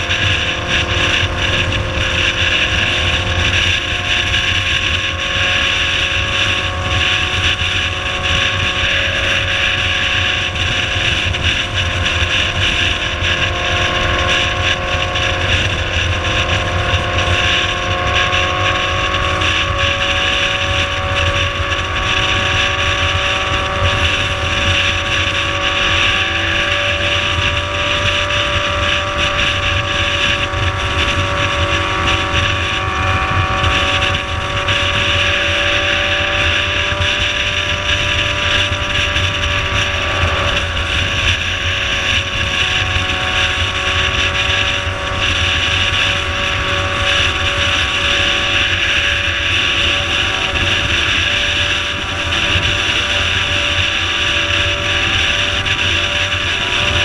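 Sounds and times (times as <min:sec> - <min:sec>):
motorcycle engine cruising: 0:00.0 - 0:57.0
wind rushing over microphone: 0:00.0 - 0:57.0.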